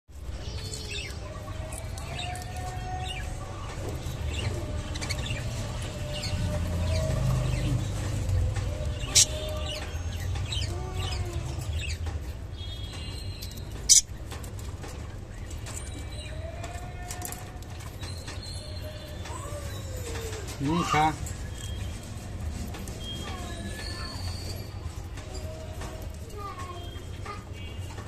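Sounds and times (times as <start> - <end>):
budgerigars chirping: 8.9 - 10.7.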